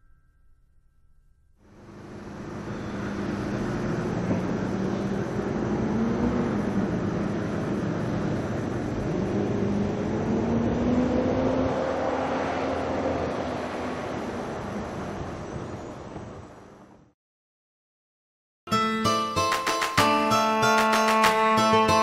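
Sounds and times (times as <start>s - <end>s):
motor engine running: 1.7s - 11.0s.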